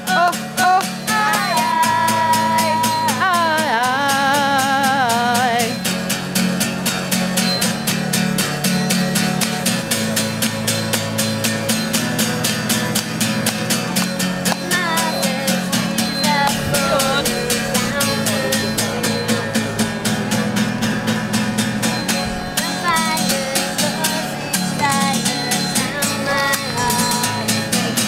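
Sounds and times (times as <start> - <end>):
woman singing: 0.0 - 5.8, 14.6 - 19.1, 22.5 - 27.8
acoustic guitar strumming: 0.0 - 28.0.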